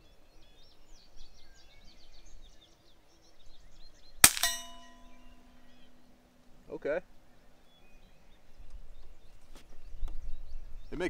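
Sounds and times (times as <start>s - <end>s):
birds chirping faintly: 0.0s - 11.0s
quiet rifle shot: 4.2s - 5.2s
bullet ringing steel target: 4.2s - 5.4s.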